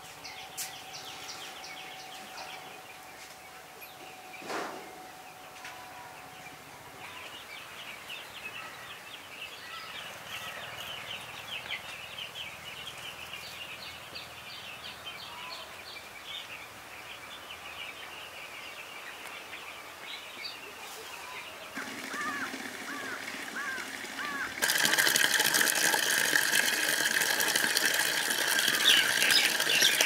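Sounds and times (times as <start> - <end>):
chickens peeping and chirping: 27.0 - 30.0.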